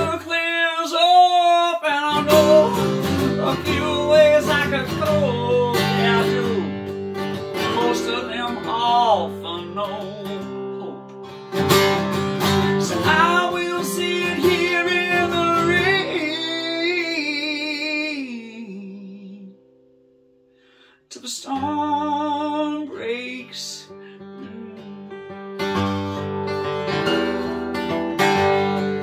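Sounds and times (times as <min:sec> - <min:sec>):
man singing wordlessly: 0:00.0 - 0:11.2, 0:12.5 - 0:19.7, 0:21.1 - 0:25.4
acoustic guitar strumming: 0:00.0 - 0:29.0.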